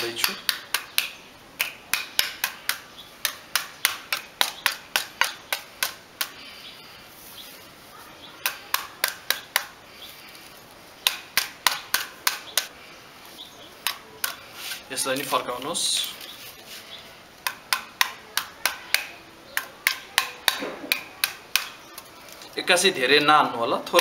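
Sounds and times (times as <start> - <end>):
block tapping bamboo sticks: 0.0 - 6.4, 8.4 - 9.8, 11.0 - 12.7, 13.8 - 14.4, 17.4 - 22.1.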